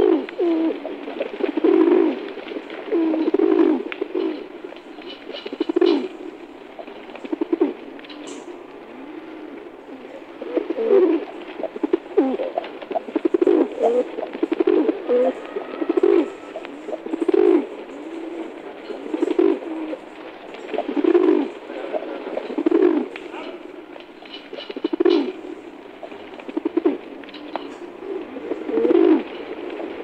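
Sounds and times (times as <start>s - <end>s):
pigeons cooing: 0.0s - 30.0s.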